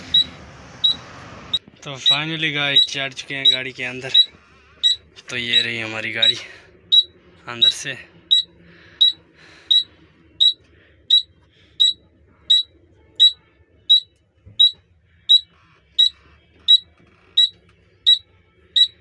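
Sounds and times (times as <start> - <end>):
dashboard warning buzzer beeping: 8.3 - 18.2, 18.8 - 19.0.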